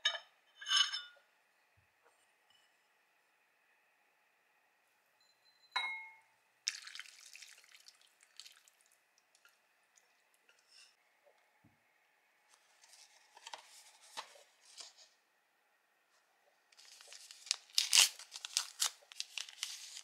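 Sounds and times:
soup splashing into bowl: 6.7s - 10.2s.

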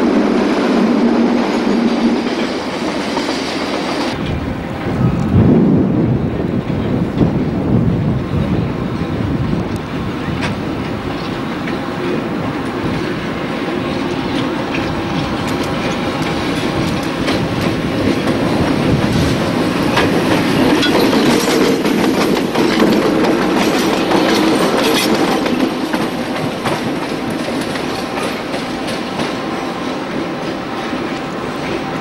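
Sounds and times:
electric locomotives passing: 0.0s - 32.0s
wheels clicking over rail joints: 13.8s - 29.4s.

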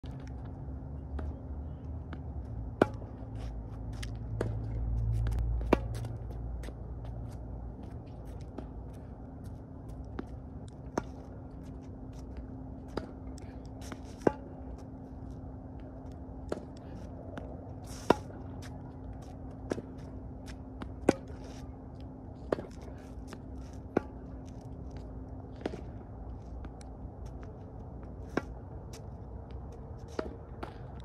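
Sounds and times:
low rumble: 0.0s - 8.2s
tennis balls struck by rackets: 2.1s - 6.8s, 9.9s - 14.8s, 16.4s - 21.6s, 22.4s - 24.5s, 29.8s - 31.0s.

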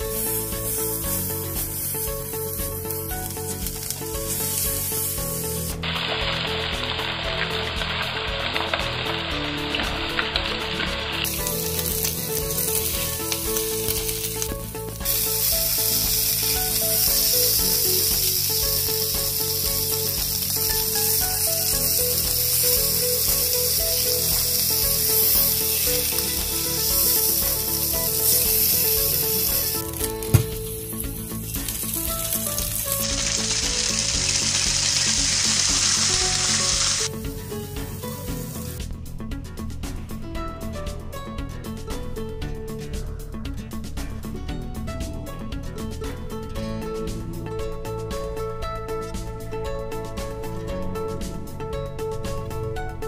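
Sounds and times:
fish sizzling in oil: 0.0s - 38.8s.

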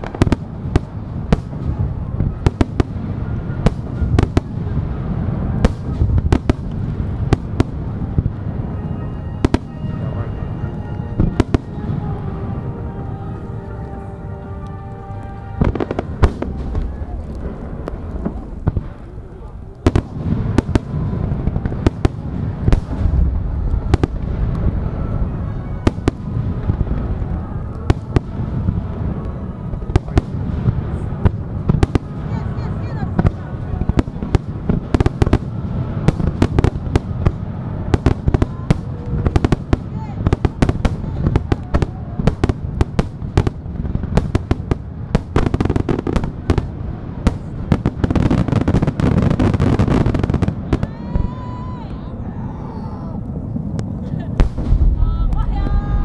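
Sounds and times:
fireworks bursting with sharp bangs: 0.0s - 56.0s
low rumble of fireworks launches: 0.0s - 56.0s.

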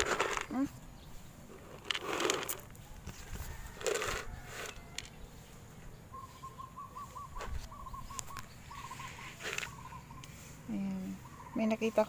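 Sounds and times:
bird chirping: 0.5s - 1.7s, 4.3s - 12.0s.

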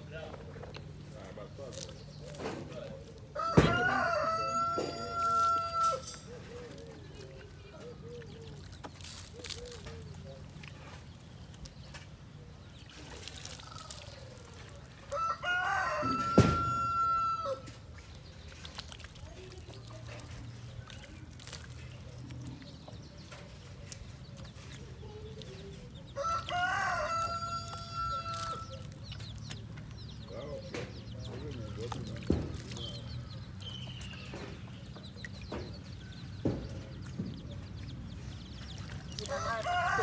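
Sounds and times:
rooster crowing: 3.4s - 6.1s, 15.1s - 17.7s, 26.2s - 28.6s, 39.3s - 40.0s.

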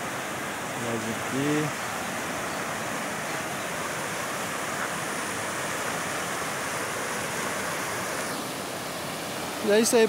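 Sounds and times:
water rushing over rocks: 0.0s - 10.0s.

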